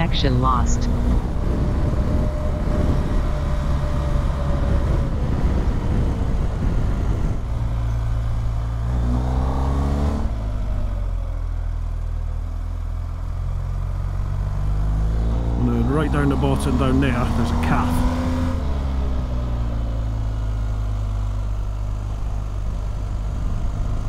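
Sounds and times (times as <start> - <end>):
wind rushing over microphone: 0.0 - 11.0, 21.8 - 24.0
motorcycle riding at speed: 0.0 - 24.0.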